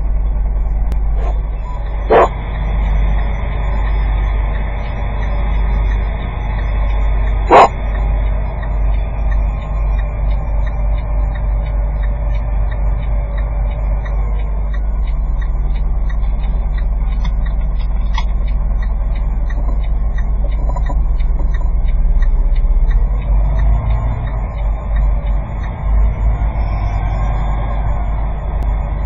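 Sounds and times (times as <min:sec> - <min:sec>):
regular ticking: 0:00.0 - 0:29.0
vehicle engine and road rumble: 0:00.0 - 0:29.0.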